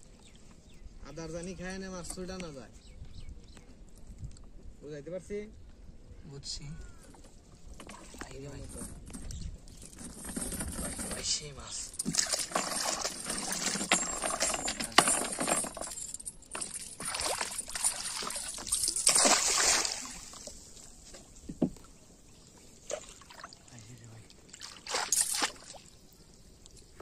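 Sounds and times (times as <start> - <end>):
water splashing and sloshing: 7.1 - 27.0.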